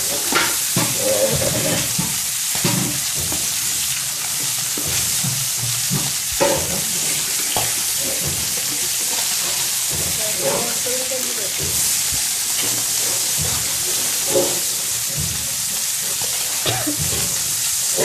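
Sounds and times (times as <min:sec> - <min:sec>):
fish sizzling in a frying pan: 0:00.0 - 0:18.0
spatula scraping and knocking pan: 0:00.0 - 0:18.0.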